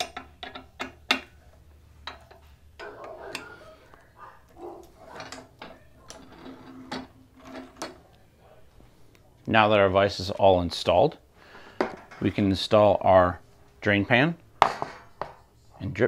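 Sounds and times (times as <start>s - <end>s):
metal vise parts clicking: 0.0s - 3.7s, 4.8s - 8.1s.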